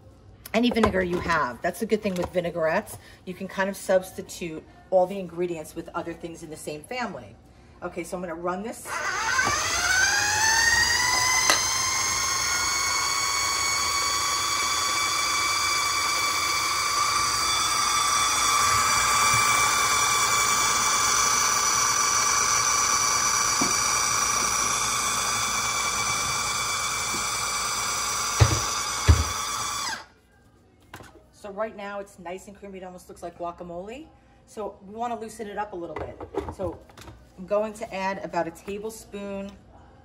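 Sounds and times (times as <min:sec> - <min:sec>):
food processor motor whining: 0:08.9 - 0:30.1.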